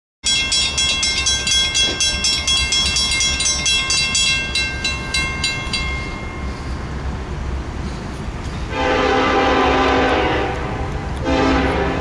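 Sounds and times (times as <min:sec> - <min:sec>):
crossing warning bell ringing: 0:00.2 - 0:07.2.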